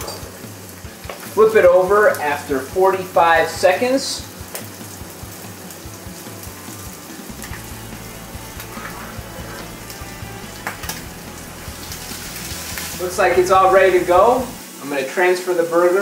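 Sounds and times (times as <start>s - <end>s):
fish patty sizzling in oil: 0.0s - 16.0s.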